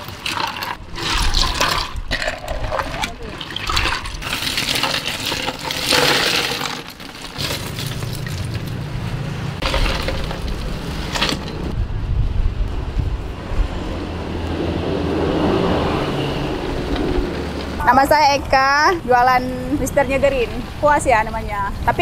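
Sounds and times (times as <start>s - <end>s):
ice cubes clattering: 0.0s - 8.8s, 9.6s - 11.7s.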